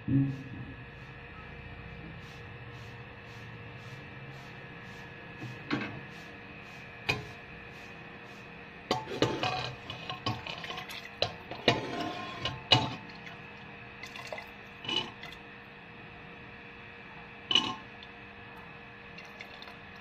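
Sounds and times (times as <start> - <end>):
liquid sloshing: 9.9 - 15.4, 19.2 - 20.0.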